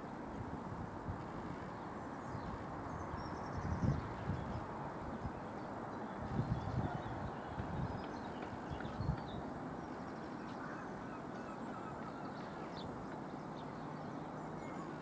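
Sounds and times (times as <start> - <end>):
outdoor background noise: 0.0 - 15.0
faint bird calls: 10.3 - 12.9.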